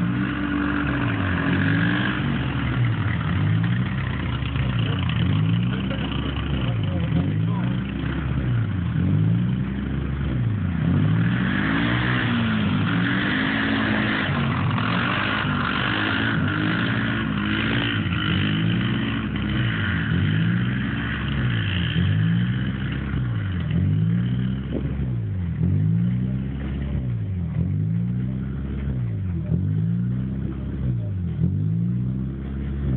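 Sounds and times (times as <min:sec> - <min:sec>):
quad bike engine revving: 0:00.0 - 0:32.9.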